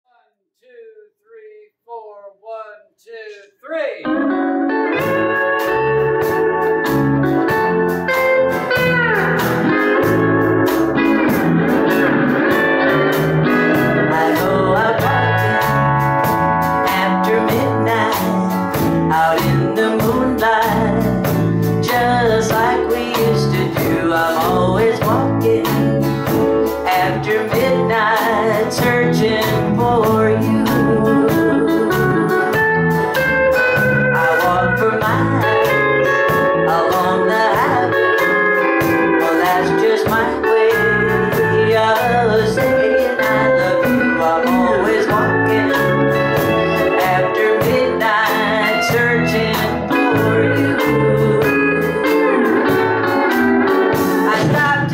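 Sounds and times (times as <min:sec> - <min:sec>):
electric and acoustic guitars: 0:04.0 - 0:54.9
pedal steel guitar: 0:04.1 - 0:54.9
drums keeping steady beat: 0:05.0 - 0:41.8, 0:42.4 - 0:54.9
woman singing: 0:13.8 - 0:26.2, 0:26.8 - 0:32.7, 0:33.8 - 0:53.4, 0:54.1 - 0:54.9.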